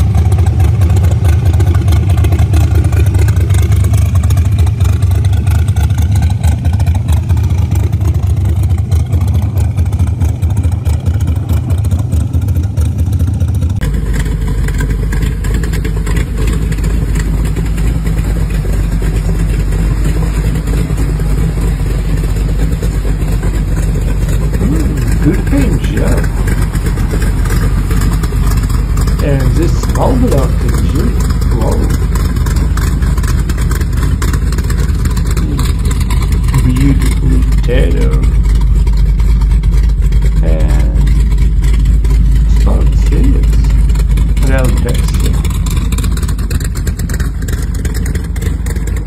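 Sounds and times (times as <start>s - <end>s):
engine idling: 0.0s - 49.0s
engine revving: 0.0s - 49.0s.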